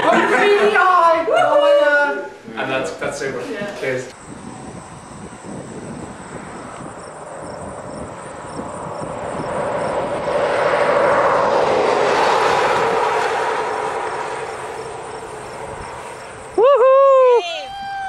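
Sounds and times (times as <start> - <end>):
vehicle passing on highway: 4.2 - 16.6.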